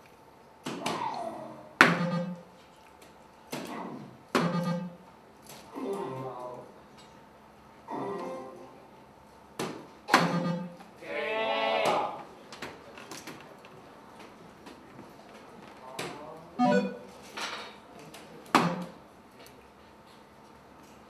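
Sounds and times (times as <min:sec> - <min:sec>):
dart hitting board: 0:01.8 - 0:02.4, 0:04.4 - 0:04.9, 0:10.1 - 0:10.8, 0:18.6 - 0:19.0
short electronic blips: 0:01.8 - 0:02.6, 0:04.4 - 0:05.1, 0:10.2 - 0:10.8, 0:16.6 - 0:17.1
warbling electronic jingle: 0:01.9 - 0:02.5, 0:04.4 - 0:05.0, 0:10.2 - 0:10.8, 0:16.6 - 0:17.1.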